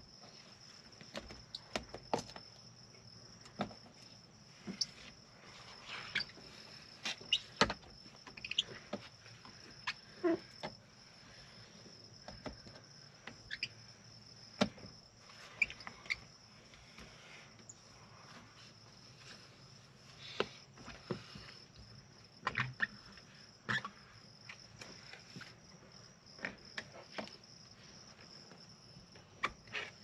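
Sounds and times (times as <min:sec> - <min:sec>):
crickets trilling: 0:00.0 - 0:30.0
short squeaks of film on glass: 0:05.9 - 0:06.4.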